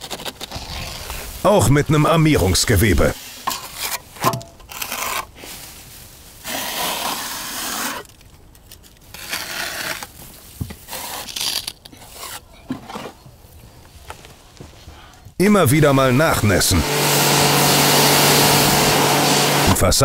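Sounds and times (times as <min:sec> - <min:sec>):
steel trowel scraping plaster: 0:03.1 - 0:05.4, 0:06.4 - 0:08.2, 0:08.8 - 0:10.2, 0:10.8 - 0:13.1.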